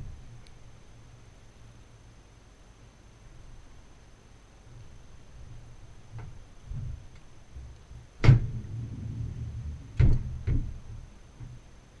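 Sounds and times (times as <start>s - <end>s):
low rumble: 6.7s - 11.5s
dishwasher door clicks and knocks: 10.0s - 10.8s.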